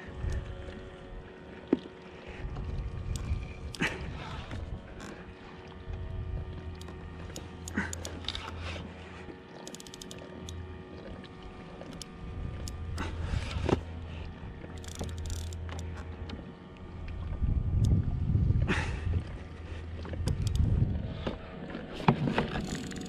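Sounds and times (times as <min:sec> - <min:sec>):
wind rumble on microphone: 0:00.0 - 0:01.3, 0:02.3 - 0:06.8, 0:12.1 - 0:15.2, 0:16.8 - 0:22.7
water lapping against kayak: 0:00.0 - 0:23.0
fishing rod and reel clicks: 0:00.2 - 0:00.8, 0:02.6 - 0:18.1, 0:20.0 - 0:21.4, 0:22.0 - 0:23.0.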